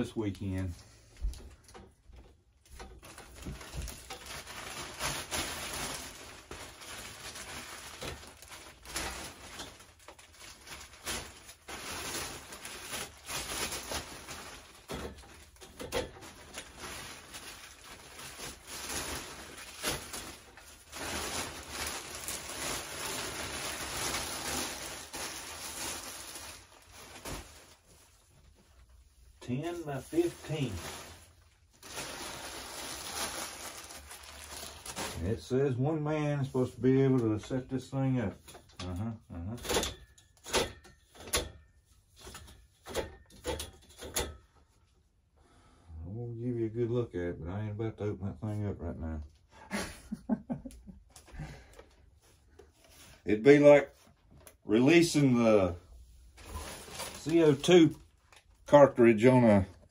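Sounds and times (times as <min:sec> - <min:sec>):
plastic wrap crinkling: 0:00.0 - 0:35.5, 0:50.9 - 0:59.9.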